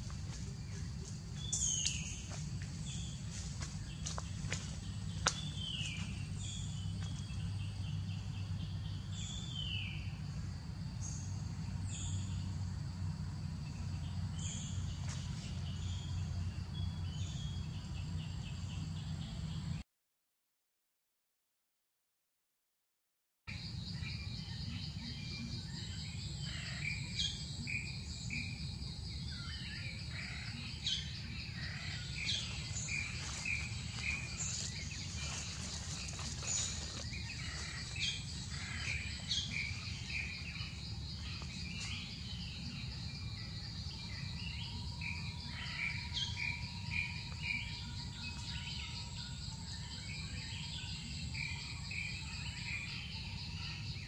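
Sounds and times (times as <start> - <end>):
birds chirping and calling: 0.0 - 10.3, 24.0 - 54.0
high insect drone: 0.0 - 19.8, 23.5 - 54.0
low steady rumble: 0.0 - 19.8, 24.0 - 53.4.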